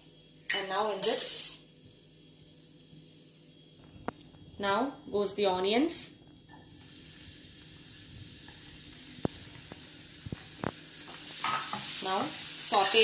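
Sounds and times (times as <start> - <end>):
onions sizzling in hot oil: 6.5 - 13.0.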